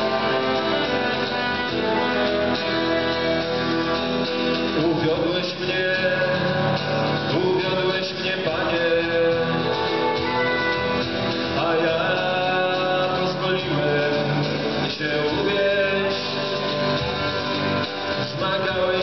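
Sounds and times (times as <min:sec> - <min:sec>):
saxophone: 0:00.0 - 0:04.8, 0:09.4 - 0:11.8
accordion: 0:00.0 - 0:19.0
guitar: 0:00.0 - 0:19.0.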